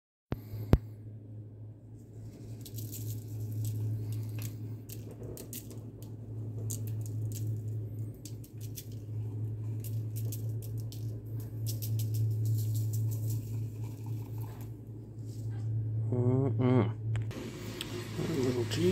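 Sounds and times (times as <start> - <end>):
steady low hum: 0.3 - 18.9
seasoning shaker rattling: 2.2 - 14.8.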